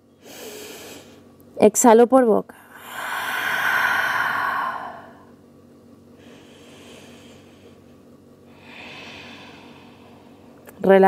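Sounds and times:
faint breath: 0:00.2 - 0:01.2, 0:02.6 - 0:05.3, 0:06.2 - 0:10.6
woman exhaling through mouth: 0:02.7 - 0:05.2.

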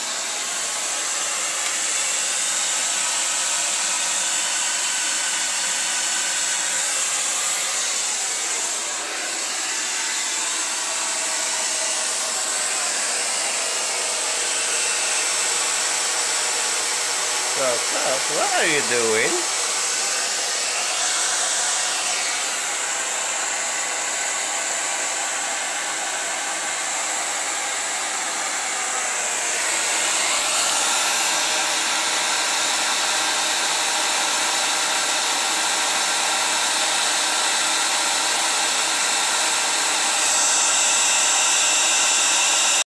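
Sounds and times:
hair dryer running: 0:00.0 - 0:42.9.

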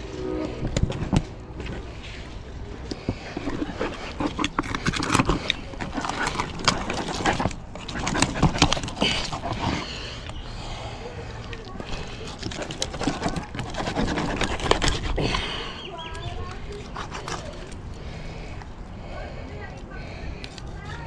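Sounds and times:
knife scraping fish bones: 0:03.4 - 0:10.4, 0:11.7 - 0:18.1.

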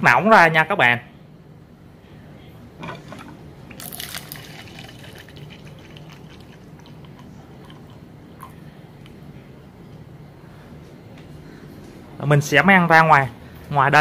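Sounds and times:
water pouring into plastic mug: 0:03.8 - 0:08.5.

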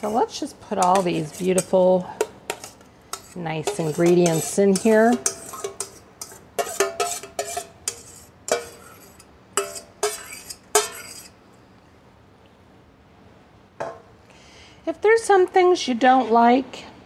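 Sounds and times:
metal spoon clinking on steel bowl: 0:00.0 - 0:11.4.

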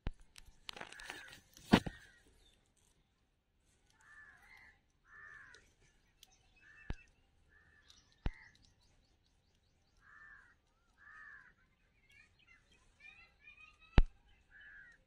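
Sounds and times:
crow cawing: 0:04.0 - 0:05.6, 0:10.0 - 0:11.6, 0:14.5 - 0:15.0.

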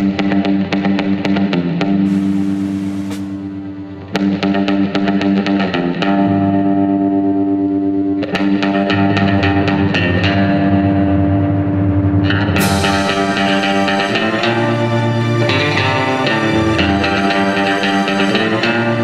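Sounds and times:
rock music with electric guitar: 0:00.0 - 0:19.0.

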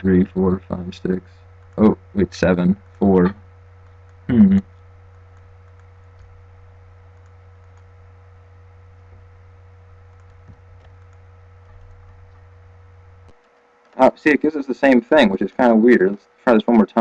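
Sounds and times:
steady low hum: 0:00.0 - 0:17.0
computer mouse and keyboard clicks: 0:05.1 - 0:06.4, 0:07.1 - 0:07.9, 0:10.1 - 0:12.4.

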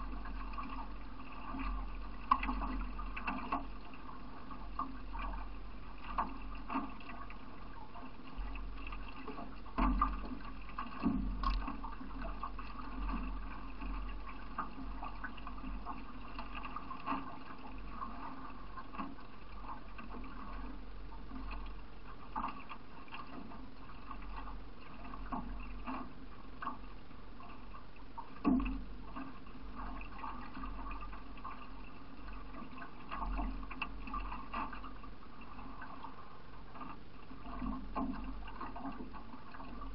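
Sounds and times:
paddle splashes and knocks: 0:00.0 - 0:39.9
water rushing along canoe hull: 0:00.0 - 0:39.9.

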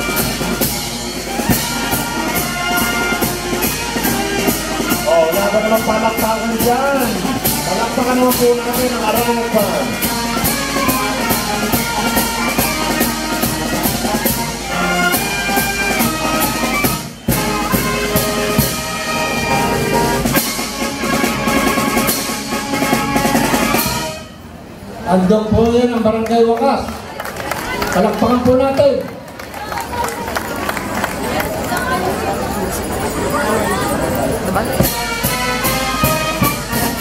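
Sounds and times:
brass marching band playing: 0:00.0 - 0:26.1, 0:30.0 - 0:37.0.

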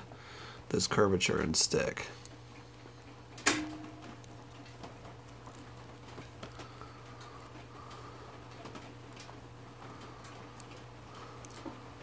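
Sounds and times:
faint ticks and rustles: 0:04.1 - 0:12.0.

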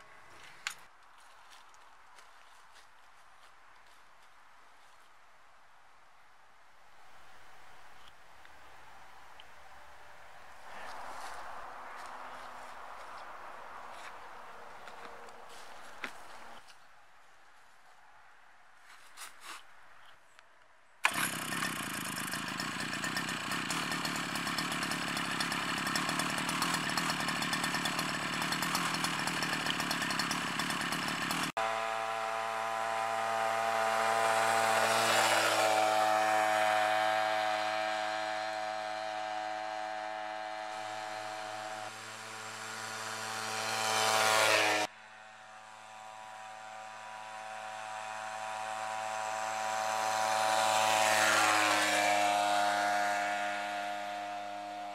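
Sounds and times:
two-stroke engine buzzing: 0:21.0 - 0:54.9.

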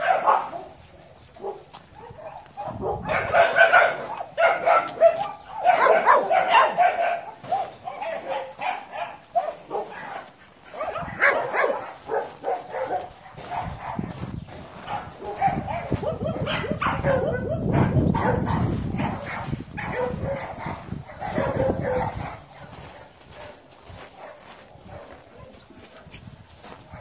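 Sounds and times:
dogs whining and yipping: 0:02.3 - 0:10.1, 0:14.9 - 0:22.2.

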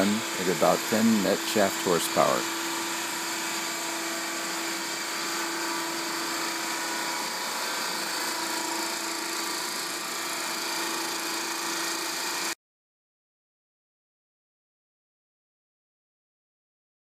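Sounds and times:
steam engine hiss and whir: 0:00.0 - 0:12.5.

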